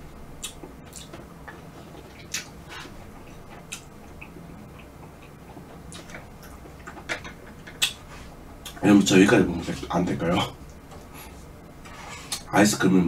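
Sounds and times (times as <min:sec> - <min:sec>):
mouth clicks and smacks: 0:00.4 - 0:08.8.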